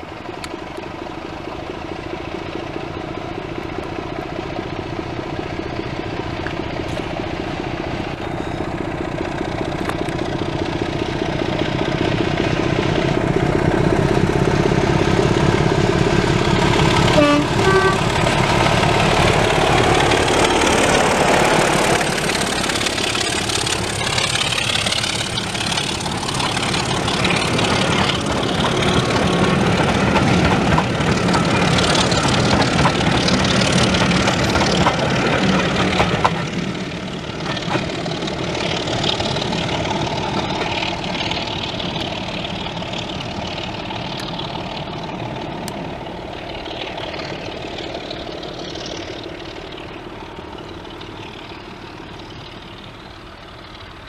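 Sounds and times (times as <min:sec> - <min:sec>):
diesel locomotive engine: 0:00.0 - 0:54.0
two-note train horn: 0:17.0 - 0:18.2.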